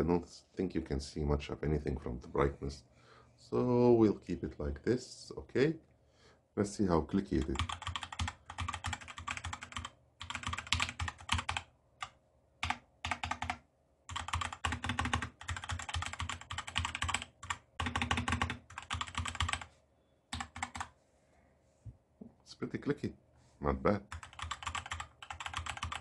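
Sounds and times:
mechanical keyboard typing: 7.4 - 19.7, 20.3 - 20.9, 24.1 - 26.0.

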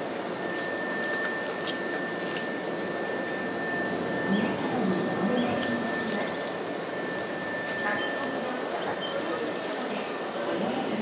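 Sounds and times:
background hum: 0.0 - 9.2.

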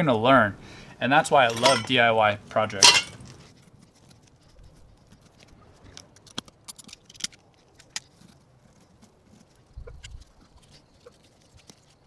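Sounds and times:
small metal parts clicking and scraping: 1.4 - 2.0, 2.7 - 4.6, 5.3 - 9.0.

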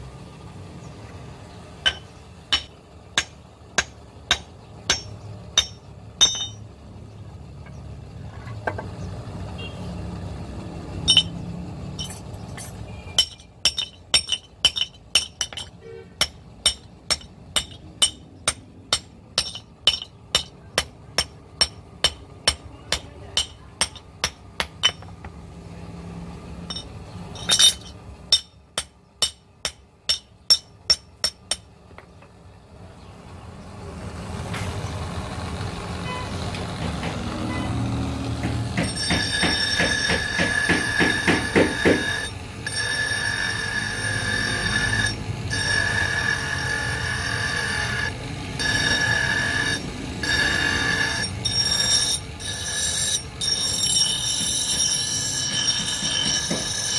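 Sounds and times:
hammer striking metal on anvil: 1.8 - 6.7, 11.0 - 11.4, 12.0 - 25.2, 26.6 - 32.1, 38.4 - 56.9.

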